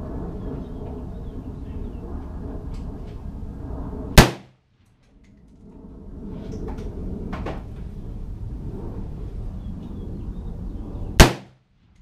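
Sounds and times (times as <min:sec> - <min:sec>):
rifle shot: 0:04.2 - 0:04.5, 0:11.2 - 0:11.6.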